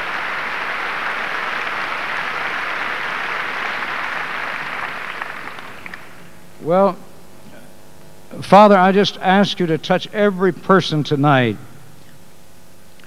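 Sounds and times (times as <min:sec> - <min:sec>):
large crowd applauding: 0:00.0 - 0:06.2.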